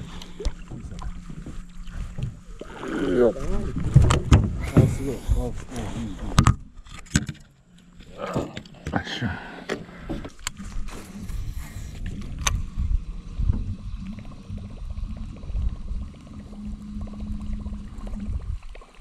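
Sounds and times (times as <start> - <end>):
low hum: 0.0 - 19.0
low rumble: 10.6 - 18.8.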